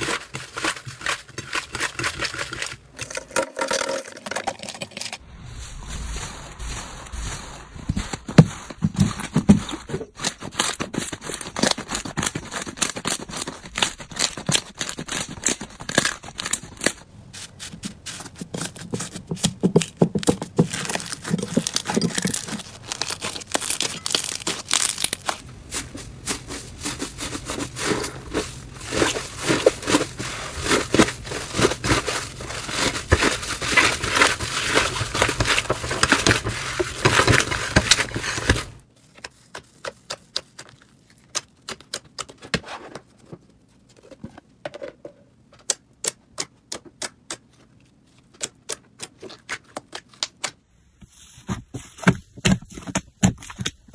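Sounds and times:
hands squelching slime: 5.2 - 42.4.

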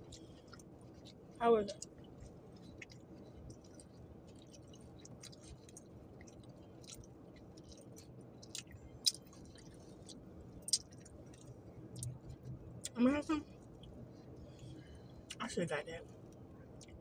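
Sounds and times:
person chewing food: 0.0 - 15.4
wet mouth clicks: 7.8 - 12.2.

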